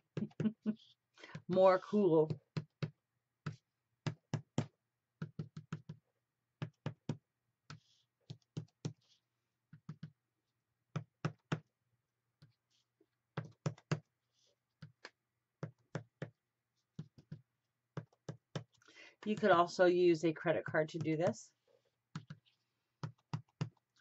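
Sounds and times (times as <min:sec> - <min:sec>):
soft scrapes on paper: 0:07.8 - 0:08.2, 0:14.2 - 0:14.6.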